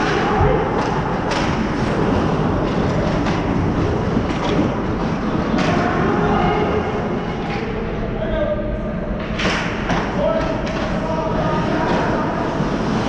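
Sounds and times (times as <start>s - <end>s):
skates and sticks scraping ice: 0.0s - 6.2s, 10.5s - 13.0s.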